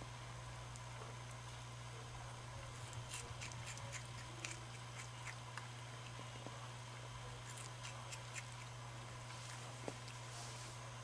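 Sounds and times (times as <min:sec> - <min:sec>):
animal chewing crunches: 0:02.7 - 0:10.4.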